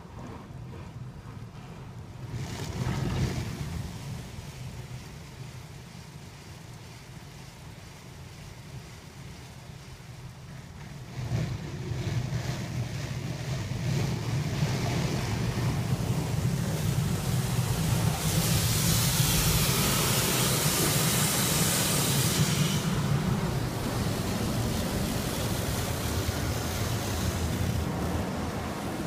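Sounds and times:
car wash brushes swishing: 0:11.1 - 0:29.0
loud hiss: 0:14.5 - 0:29.0.

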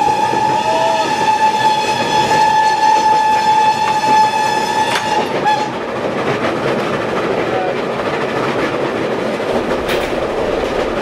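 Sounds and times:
steam locomotive whistle: 0:00.0 - 0:05.8
train running at speed: 0:00.0 - 0:11.0.

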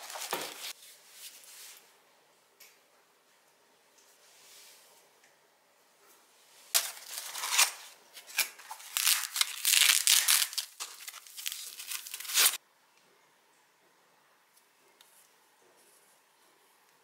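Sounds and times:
cardboard and packing crinkling: 0:00.0 - 0:00.8, 0:06.8 - 0:12.6.

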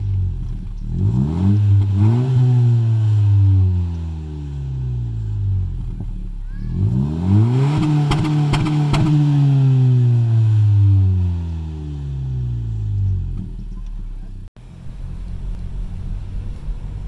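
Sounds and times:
car exhaust revving: 0:00.0 - 0:17.0
exhaust crackles: 0:00.0 - 0:17.0.

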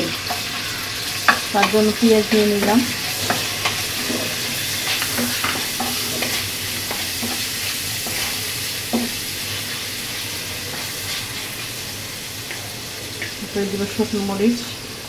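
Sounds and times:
onions sizzling in oil: 0:00.0 - 0:15.0
wooden spatula scraping pan: 0:01.3 - 0:09.8.

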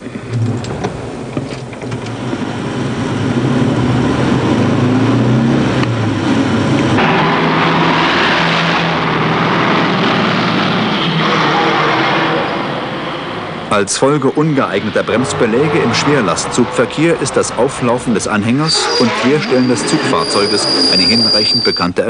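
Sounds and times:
car engine running inside cabin: 0:00.0 - 0:13.7
truck engine and road noise: 0:00.0 - 0:22.0.

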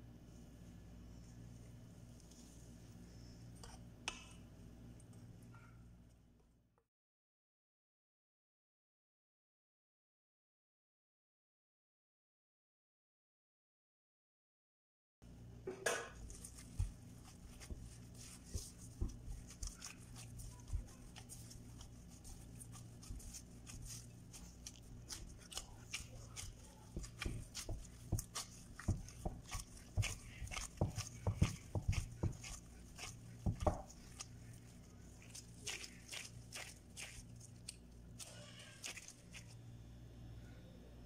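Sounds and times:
steady low hum: 0:15.3 - 0:38.2
hands kneading dough in glass bowl: 0:16.1 - 0:39.6.

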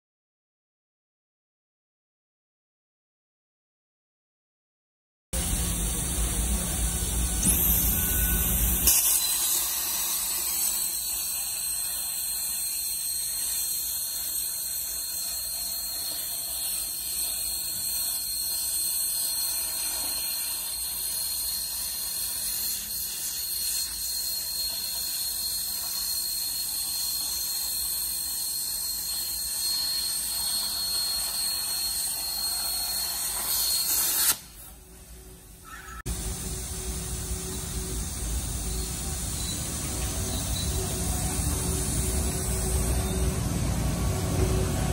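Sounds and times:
plasma torch hissing and squealing: 0:07.2 - 0:34.8, 0:35.6 - 0:43.4.

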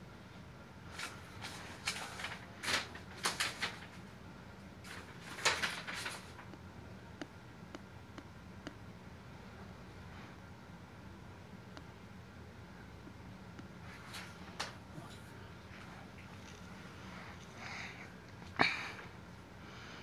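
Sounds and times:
paper rustling: 0:00.9 - 0:04.1, 0:04.8 - 0:06.5, 0:13.9 - 0:15.2.

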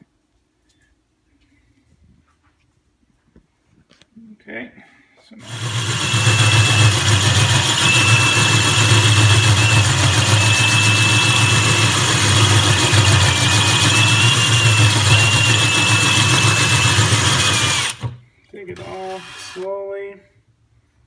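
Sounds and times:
drill cutting into stone: 0:05.4 - 0:18.2, 0:18.8 - 0:19.8.

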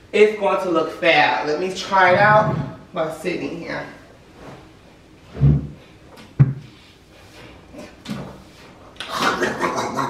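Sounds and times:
dull low thump: 0:02.0 - 0:02.9, 0:06.4 - 0:06.7.

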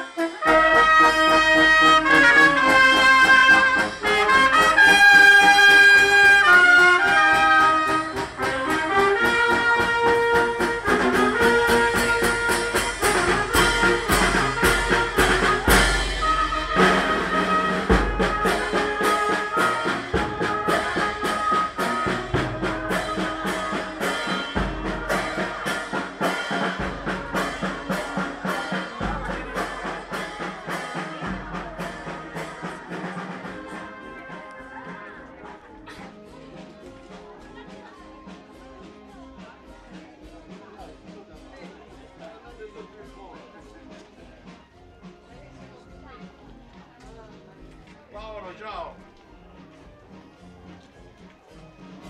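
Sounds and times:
brass band playing a march: 0:00.0 - 0:37.7
marching drum: 0:00.4 - 0:35.6.

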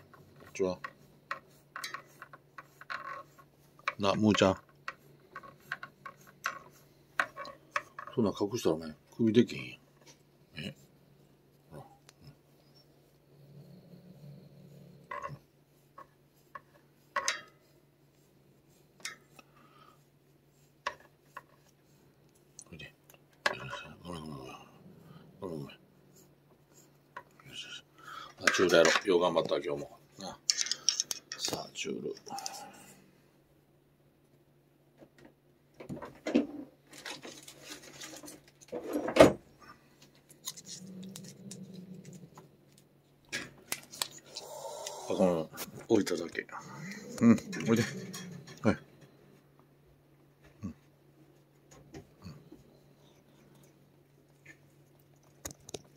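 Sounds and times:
rustling and clicking handling noises: 0:00.0 - 0:10.8, 0:28.3 - 0:32.6, 0:34.3 - 0:49.7, 0:51.2 - 0:55.9
back scratcher scraping fur: 0:00.0 - 0:10.9.

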